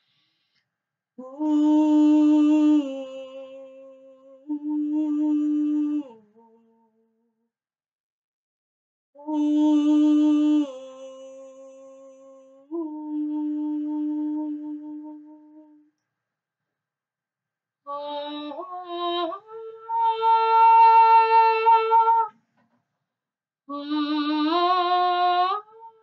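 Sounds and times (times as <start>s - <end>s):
woman singing wordless tones: 1.2s - 7.1s, 9.2s - 15.8s, 17.9s - 22.3s, 23.7s - 26.0s.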